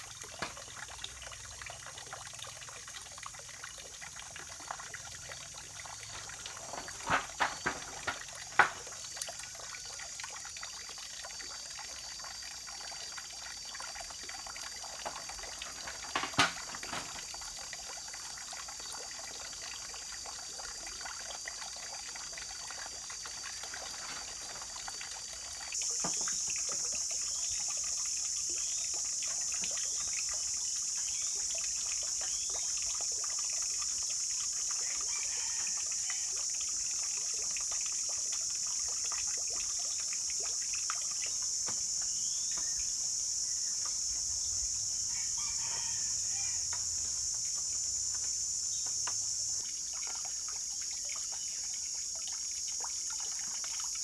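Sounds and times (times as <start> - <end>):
high-pitched insect chorus: 0.0 - 54.0
knocks of tiles and wooden poles: 6.7 - 8.8, 15.8 - 17.1.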